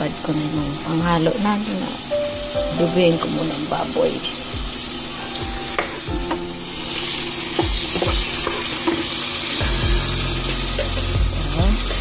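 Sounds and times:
tomatoes sizzling in hot oil: 0:00.0 - 0:12.0
wooden spatula knocking pan: 0:07.6 - 0:09.2.

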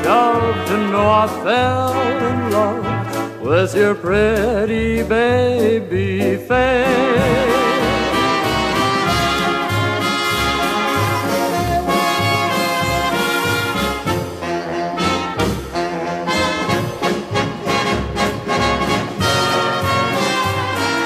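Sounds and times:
big band brass: 0:00.0 - 0:21.0
steady bass beat: 0:04.0 - 0:09.9.

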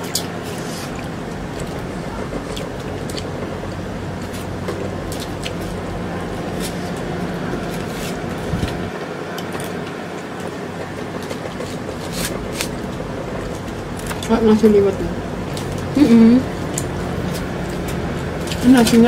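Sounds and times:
eating sounds: 0:00.0 - 0:07.1
low background hum: 0:00.0 - 0:19.0.

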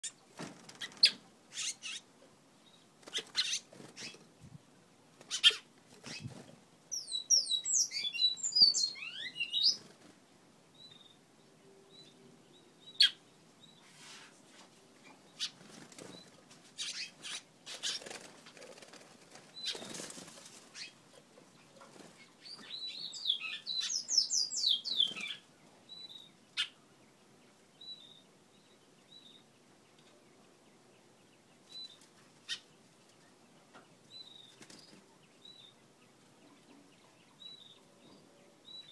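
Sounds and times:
bird wings fluttering: 0:00.3 - 0:01.1, 0:15.5 - 0:16.4, 0:17.7 - 0:20.9, 0:34.5 - 0:35.0.

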